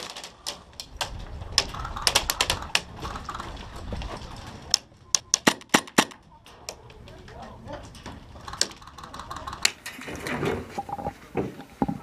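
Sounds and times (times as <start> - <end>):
airsoft shots and clicks: 5.3 - 6.2.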